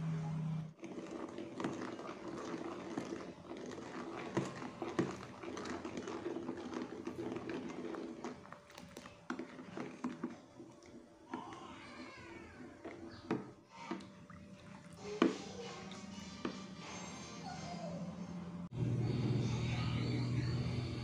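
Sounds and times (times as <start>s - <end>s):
spoon stirring and scraping pan: 0.8s - 11.6s.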